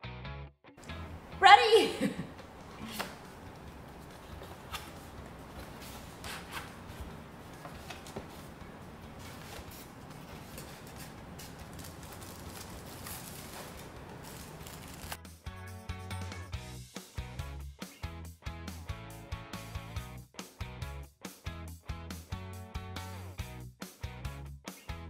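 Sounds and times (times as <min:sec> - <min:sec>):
packing rustling and scraping: 0:02.8 - 0:15.2.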